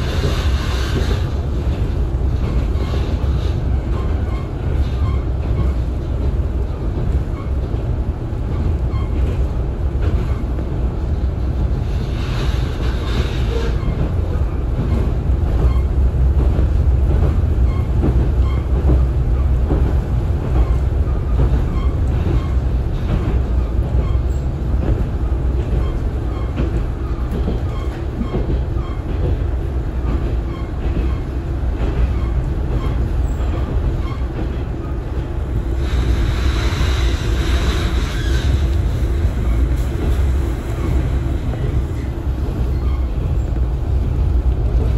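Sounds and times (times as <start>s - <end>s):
wheels rumbling on rails: 0.0s - 44.9s
hiss: 35.7s - 39.0s.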